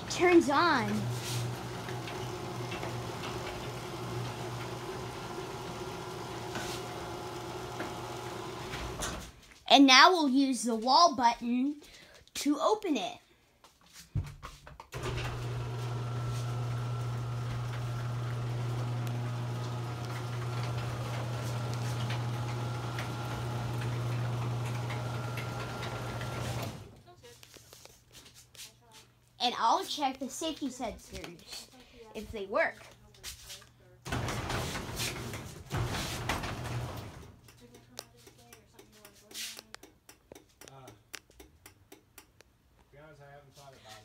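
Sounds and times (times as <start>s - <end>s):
garage door opener motor humming: 0.0s - 9.4s, 15.0s - 27.0s, 34.1s - 37.4s.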